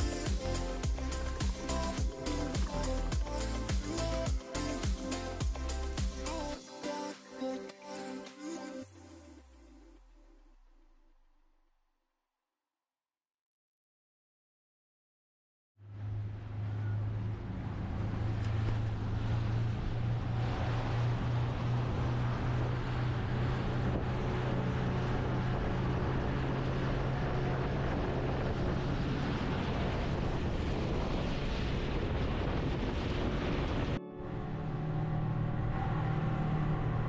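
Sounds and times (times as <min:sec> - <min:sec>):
boat engine droning: 0:15.8 - 0:37.0.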